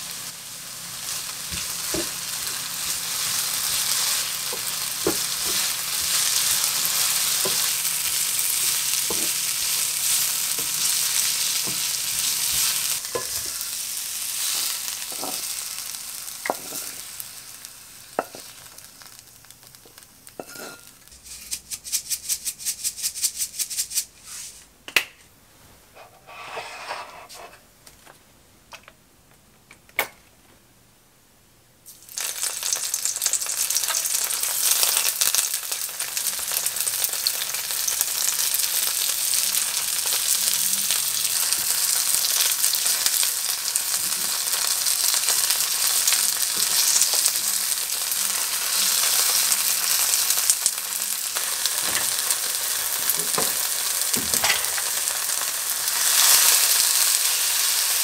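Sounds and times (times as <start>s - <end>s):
vegetables sizzling in a pan: 0.0s - 24.4s, 31.8s - 58.0s
spatula stirring and tapping: 8.7s - 11.0s
pan and utensils clacking: 20.4s - 21.8s, 51.8s - 52.3s, 53.1s - 55.0s.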